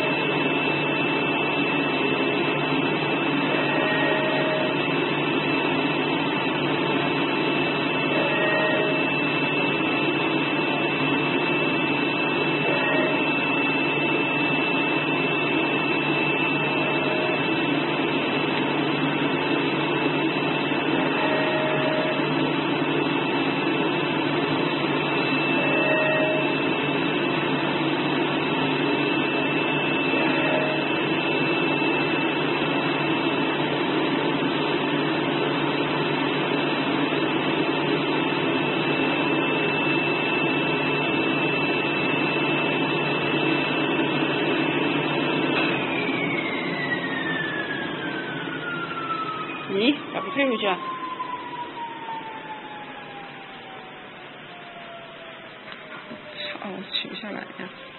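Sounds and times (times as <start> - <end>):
vacuum blower rushing hum: 0.0 - 54.0
steady high whine: 0.0 - 57.9
short motor whines: 3.0 - 5.7, 6.3 - 24.1, 24.7 - 27.8, 28.4 - 33.1, 44.9 - 56.7.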